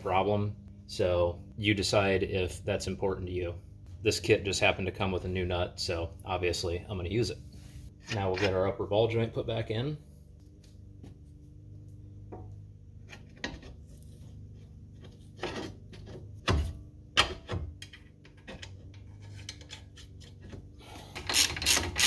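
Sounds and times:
metal parts knocking and scraping: 0:17.2 - 0:20.6
ratchet wrench clicking rapidly: 0:21.2 - 0:22.0.

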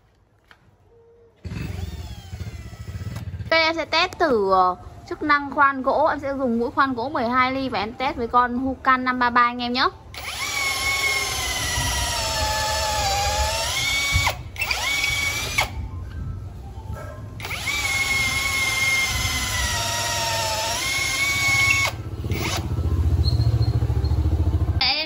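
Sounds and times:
drill motor whine: 0:01.4 - 0:03.2, 0:10.2 - 0:15.8, 0:17.4 - 0:22.8.

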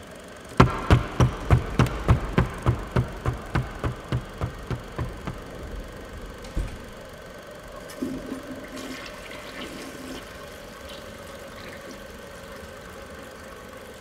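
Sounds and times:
faint steady hum: 0:00.0 - 0:14.0
toilet flushing: 0:07.6 - 0:14.0.

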